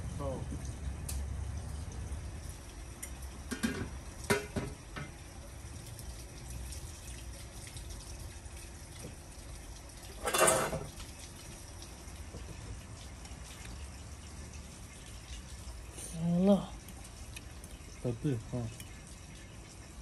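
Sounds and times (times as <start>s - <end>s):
metal clatter: 10.2s - 10.9s
metal pot lid and ladle clinking: 10.2s - 10.9s.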